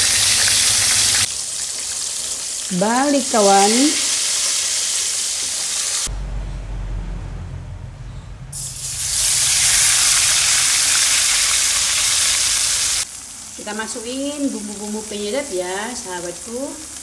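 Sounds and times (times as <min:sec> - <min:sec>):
chili paste sizzling in oil: 0:00.0 - 0:06.1, 0:08.6 - 0:17.0
fish frying in hot oil: 0:00.0 - 0:06.1, 0:08.6 - 0:17.0
low hum: 0:06.1 - 0:10.9.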